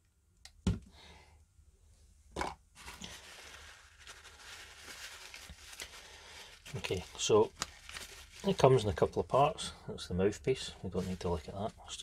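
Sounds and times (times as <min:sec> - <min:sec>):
paper towel rustling: 0:02.8 - 0:09.5, 0:10.8 - 0:12.0.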